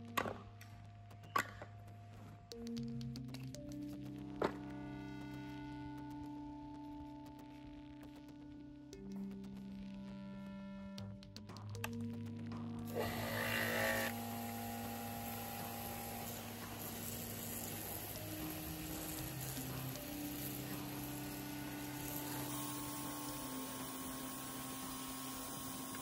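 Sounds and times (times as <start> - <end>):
pressure washer spraying: 12.9 - 26.0.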